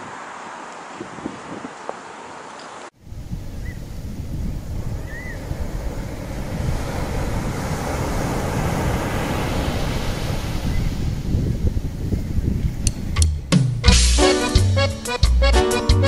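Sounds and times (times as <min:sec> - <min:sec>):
small waves washing on sand: 0:00.0 - 0:12.0
wind buffeting microphone: 0:00.0 - 0:13.8.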